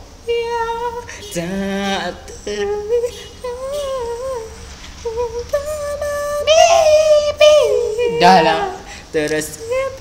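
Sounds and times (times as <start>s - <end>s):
boy humming a slow tune: 0.3s - 8.9s.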